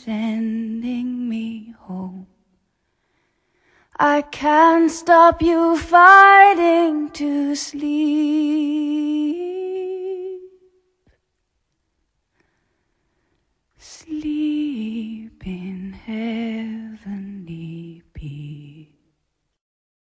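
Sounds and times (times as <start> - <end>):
woman singing softly: 0.0 - 2.5, 3.9 - 10.8, 13.8 - 19.1.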